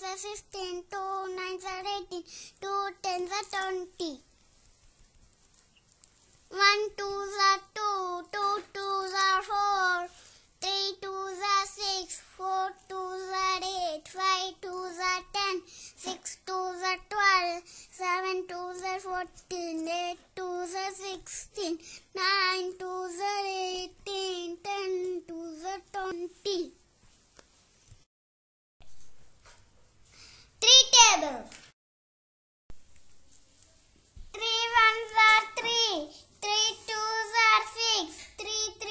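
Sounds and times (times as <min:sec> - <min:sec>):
child singing: 0:00.0 - 0:04.2, 0:06.5 - 0:26.7, 0:34.3 - 0:38.9.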